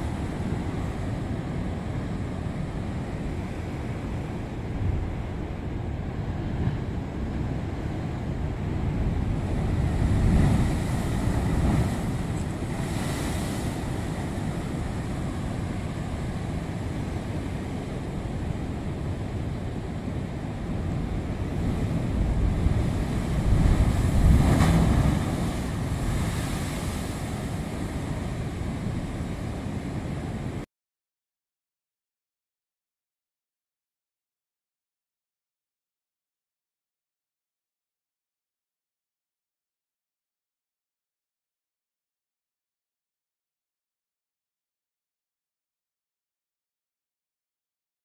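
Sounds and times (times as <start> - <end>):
heavy surf rumbling: 0.0 - 30.6
wind buffeting microphone: 0.0 - 30.6.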